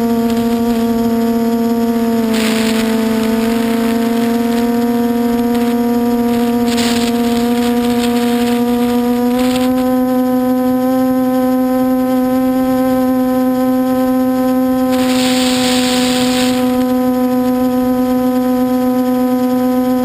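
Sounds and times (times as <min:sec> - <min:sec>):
drone motors humming: 0:00.0 - 0:20.0
hiss: 0:02.2 - 0:09.7, 0:14.9 - 0:17.0.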